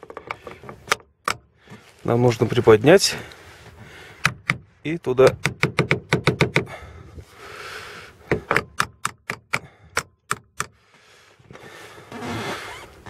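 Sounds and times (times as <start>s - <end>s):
hammer knocking on metal: 4.2s - 6.7s.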